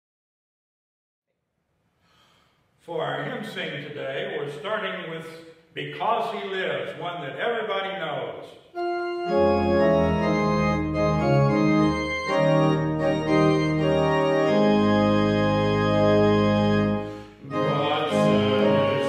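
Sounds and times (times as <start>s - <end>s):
church organ playing chords: 8.7s - 19.0s.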